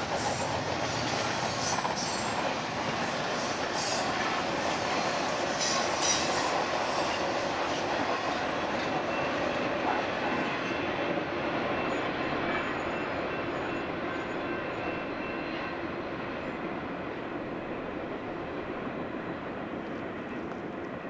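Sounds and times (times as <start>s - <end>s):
freight train rolling on rails: 0.0s - 21.0s.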